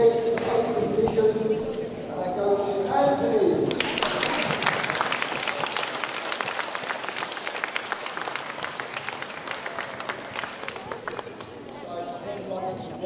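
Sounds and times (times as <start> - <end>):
crowd applauding: 3.7 - 11.8.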